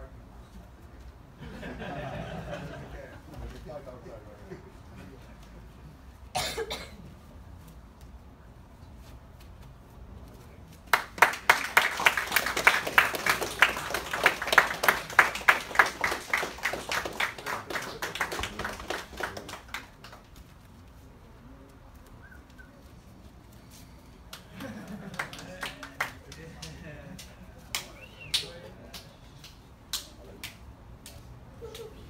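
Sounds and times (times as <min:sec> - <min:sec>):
group of people applauding: 0:10.9 - 0:20.3, 0:24.3 - 0:29.0.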